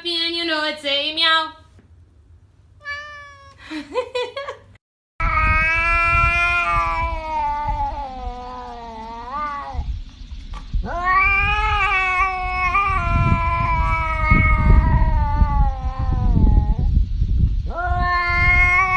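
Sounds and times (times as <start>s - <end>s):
cat yowling: 2.8s - 3.6s, 5.2s - 9.9s, 10.8s - 16.9s, 17.7s - 18.9s
low rumble: 5.2s - 18.9s.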